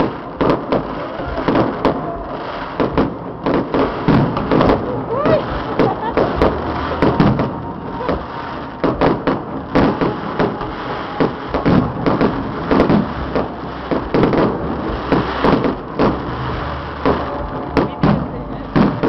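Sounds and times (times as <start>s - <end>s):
fireworks banging: 0.0s - 19.0s.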